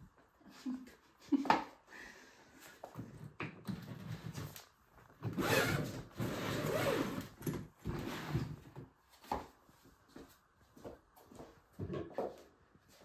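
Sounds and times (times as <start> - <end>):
suitcase rasping on floor: 5.3 - 8.6.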